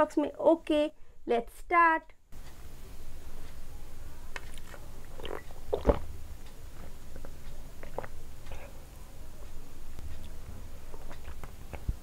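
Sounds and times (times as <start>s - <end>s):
wet mouth clicks: 4.4s - 6.0s, 7.1s - 8.7s, 10.0s - 12.0s
person swallowing and gulping: 4.4s - 6.1s, 6.8s - 8.7s, 10.1s - 12.0s.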